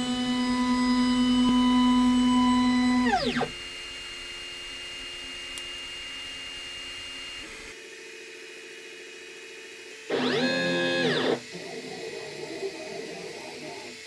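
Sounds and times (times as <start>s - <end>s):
stepper motor whining: 0.0s - 3.8s, 10.1s - 14.0s
printer fans and motors humming: 0.0s - 14.0s.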